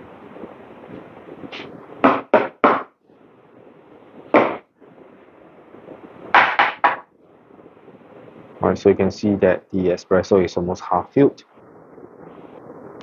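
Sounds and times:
sharp handling knocks: 0:01.6 - 0:02.9, 0:04.4 - 0:04.6, 0:06.4 - 0:07.1.

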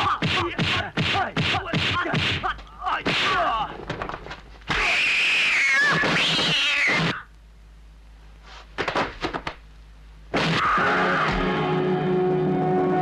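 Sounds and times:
cat yowling: 0:04.8 - 0:07.2.

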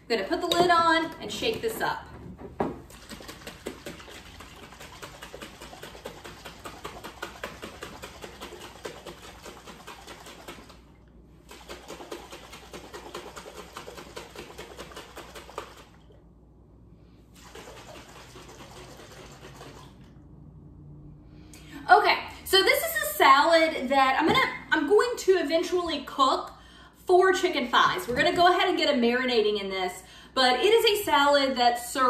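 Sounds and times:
liquid sloshing in shaken jar: 0:02.8 - 0:16.2, 0:17.4 - 0:20.1.

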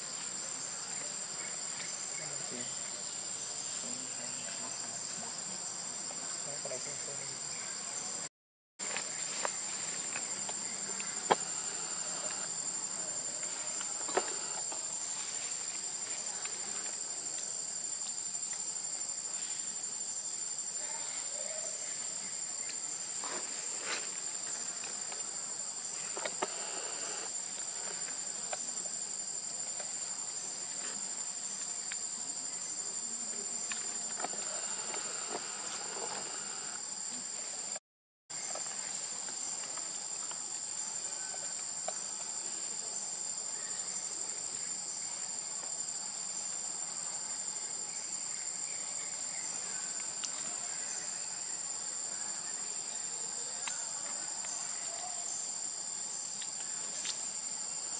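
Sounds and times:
shrill insect chorus: 0:00.0 - 0:57.9.

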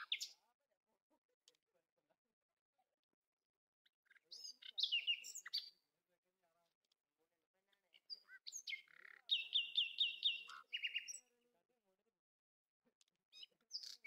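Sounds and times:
bird chirping: 0:00.0 - 0:00.4, 0:04.0 - 0:05.8, 0:07.8 - 0:11.4, 0:13.3 - 0:14.0.

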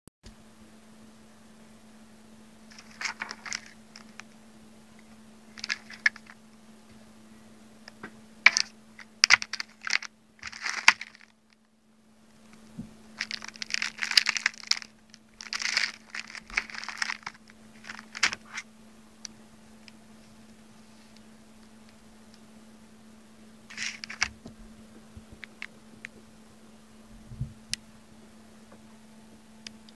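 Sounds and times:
faint steady hum: 0:00.2 - 0:29.9
foil bag crinkling: 0:02.7 - 0:04.3, 0:05.5 - 0:06.4, 0:08.4 - 0:11.6, 0:12.4 - 0:18.6, 0:23.7 - 0:25.7.

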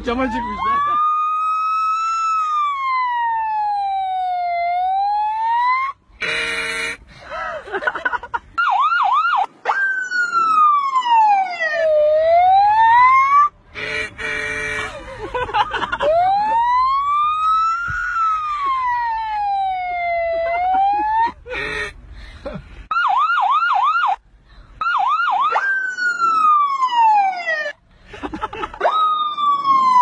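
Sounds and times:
boy imitating police siren: 0:00.1 - 0:06.0, 0:08.6 - 0:13.6, 0:16.0 - 0:21.9, 0:24.8 - 0:27.7, 0:28.8 - 0:30.0.

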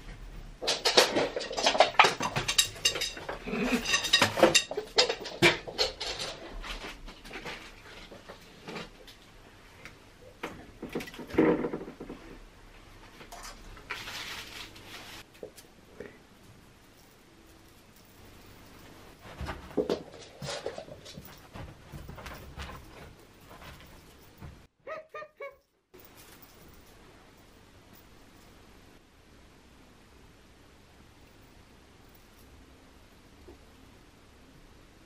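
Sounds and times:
glass jars and bottles clinking: 0:00.6 - 0:06.1.

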